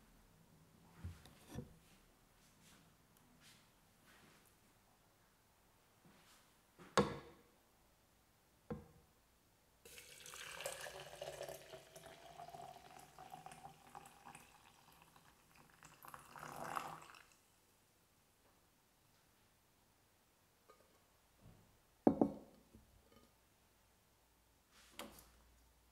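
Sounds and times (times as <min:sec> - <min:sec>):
hot water pouring into glass: 0:09.9 - 0:17.4.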